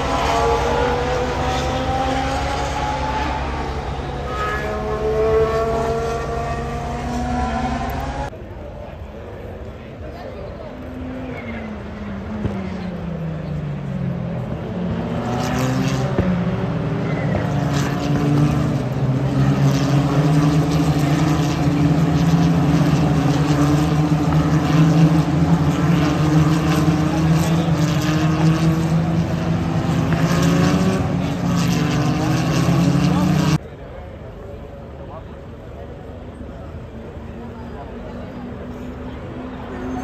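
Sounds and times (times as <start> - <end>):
race cars passing at high revs: 0.0 - 8.7, 9.3 - 33.8, 35.2 - 40.0.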